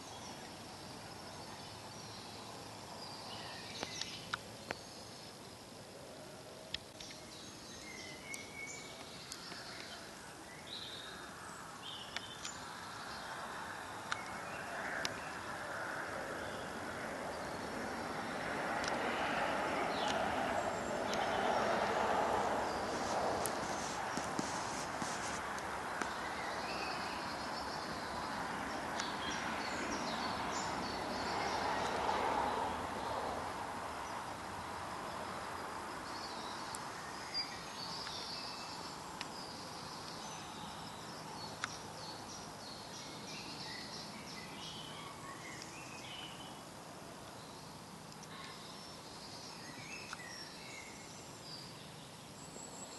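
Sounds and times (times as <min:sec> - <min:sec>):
faint steady hiss: 0:00.0 - 0:52.9
outdoor background noise: 0:00.0 - 0:52.9
small birds calling: 0:06.7 - 0:33.2, 0:47.2 - 0:52.9.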